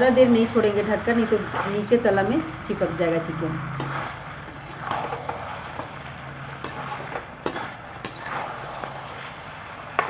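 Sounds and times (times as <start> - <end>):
ladle stirring in pan: 1.3 - 2.0, 3.6 - 10.0
chicken sizzling in pan: 3.6 - 10.0.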